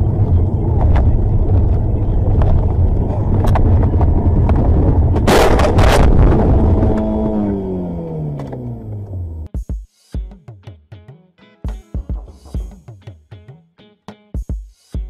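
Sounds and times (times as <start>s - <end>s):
road and wind rumble inside car: 0.0s - 9.5s
car collision crash: 5.1s - 6.9s.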